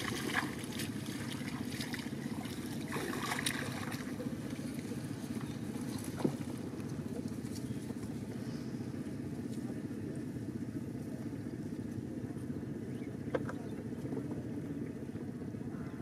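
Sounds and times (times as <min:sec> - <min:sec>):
water splashing: 0:00.0 - 0:07.5
low motor drone: 0:00.0 - 0:16.0.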